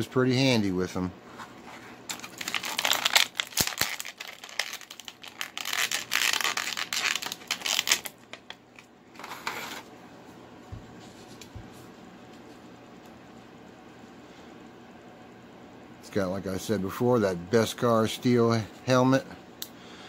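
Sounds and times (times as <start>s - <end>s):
plastic packaging crinkling: 2.1s - 8.8s.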